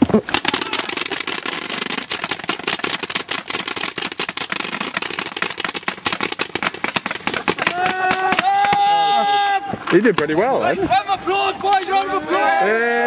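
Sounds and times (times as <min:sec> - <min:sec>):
paintball markers firing rapidly: 0:00.0 - 0:09.0.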